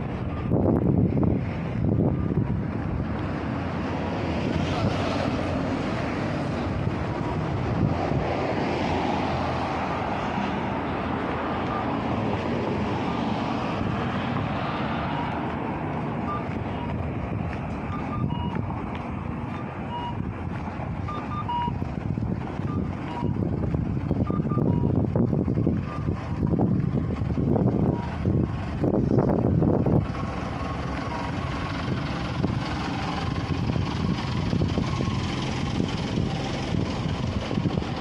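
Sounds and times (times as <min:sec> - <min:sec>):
cars passing: 0:00.0 - 0:38.0
short high electronic beeps: 0:21.1 - 0:21.7.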